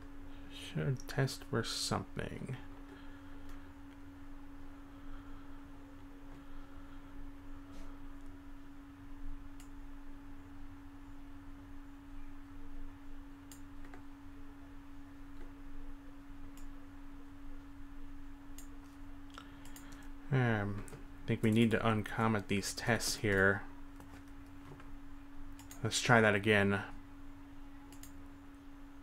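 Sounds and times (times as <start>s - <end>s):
steady low tone: 0.0s - 23.9s
low hum: 0.0s - 29.0s
computer mouse clicks: 13.5s - 14.0s, 19.3s - 20.1s, 25.5s - 25.8s, 27.9s - 28.2s.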